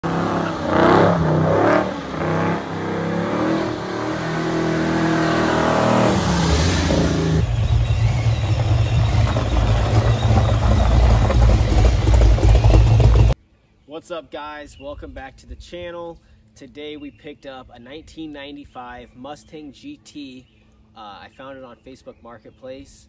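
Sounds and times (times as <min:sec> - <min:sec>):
car engine revving hard: 0:00.0 - 0:13.4.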